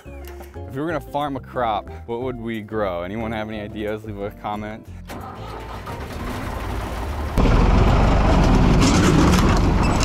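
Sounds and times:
tractor engine running: 5.1 - 10.0.

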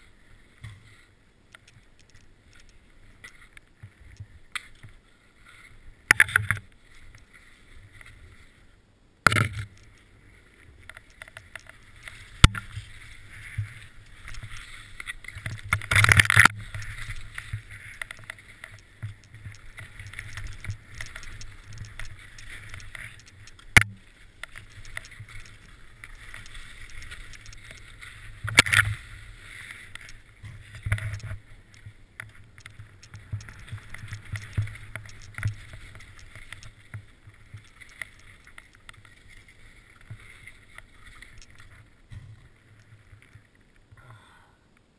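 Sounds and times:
skis scraping over snow: 0.0 - 8.8, 9.6 - 43.6.

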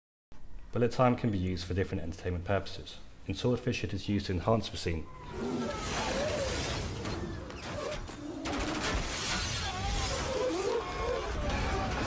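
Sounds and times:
crashing and shattering: 5.6 - 12.0.

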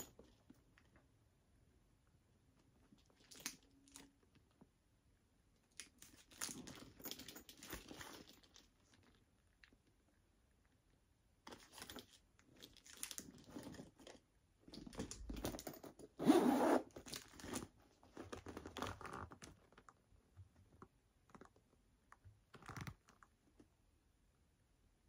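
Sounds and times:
backpack rustling and scraping: 16.2 - 19.2
zipper being worked: 16.2 - 19.4.

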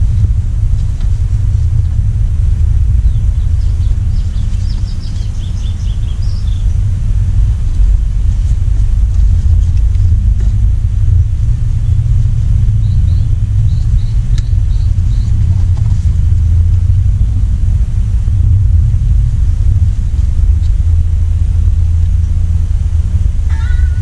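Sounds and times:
steady low rumble: 0.0 - 24.0
high bird chirps: 3.0 - 6.8, 12.7 - 15.4.

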